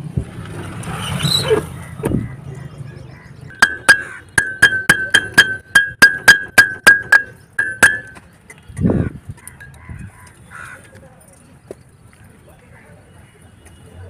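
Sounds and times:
hammer striking steel hub: 3.5 - 8.2.

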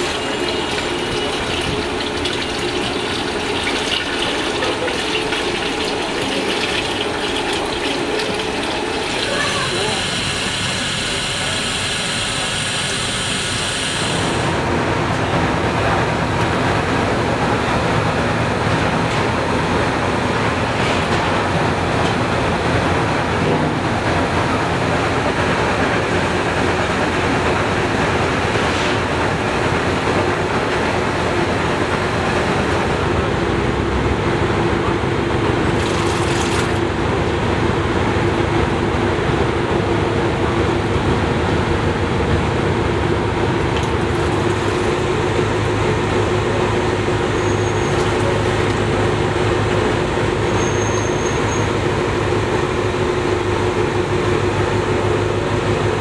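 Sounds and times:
water running into a cauldron: 0.0 - 14.6, 35.2 - 39.8, 43.2 - 50.6
gas burner roaring: 0.0 - 56.0.

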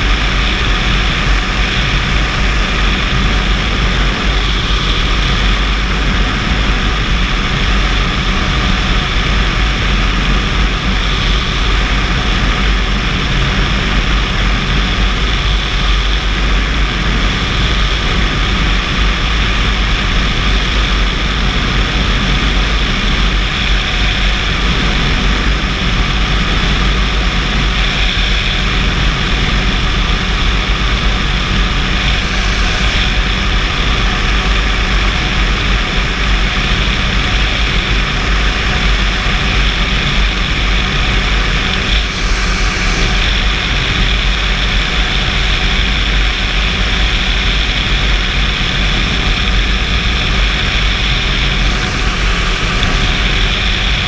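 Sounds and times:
air rushing past: 0.0 - 54.0
microlight engine and propeller: 0.0 - 54.0.

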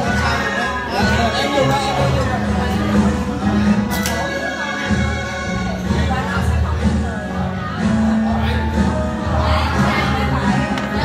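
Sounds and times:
loud music with pulsing bass: 4.6 - 11.0.

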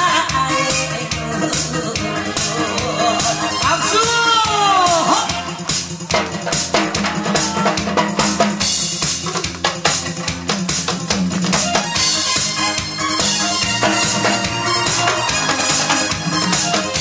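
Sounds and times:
backing music: 0.0 - 17.0
snare and tom hits: 4.9 - 17.0.

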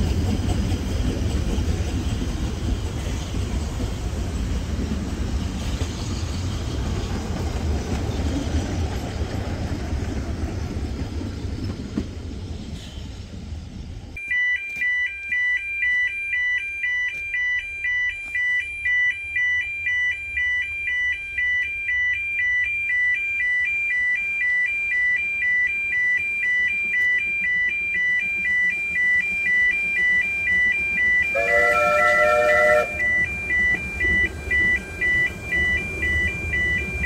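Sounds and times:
two-tone crossing alarm: 14.2 - 37.0
steam locomotive whistle: 28.5 - 37.0.

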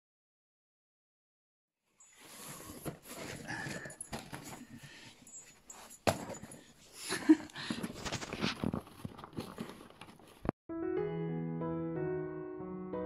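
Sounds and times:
bedding rustling: 2.0 - 10.5.

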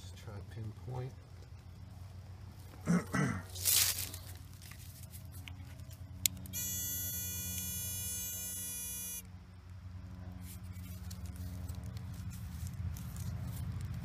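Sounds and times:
pinpointer buzzing alarm: 6.5 - 9.3.

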